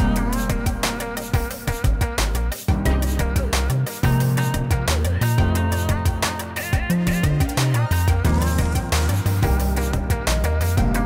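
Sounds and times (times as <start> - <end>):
background music with drum beat: 0.0 - 11.0.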